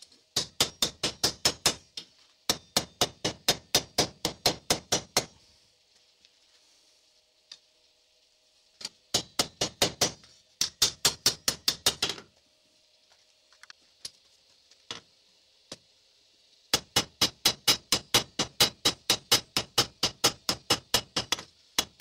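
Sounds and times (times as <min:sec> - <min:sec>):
hammer ringing on hot steel: 0:00.4 - 0:01.8, 0:02.5 - 0:05.3.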